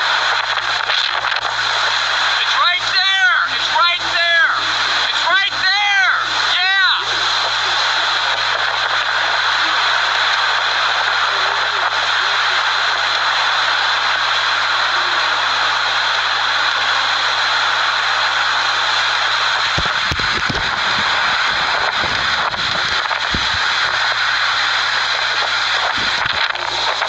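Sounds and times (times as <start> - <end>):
tornado winds rushing: 0.0 - 27.0
sharp knocks and crackles: 19.7 - 20.9, 21.8 - 23.7.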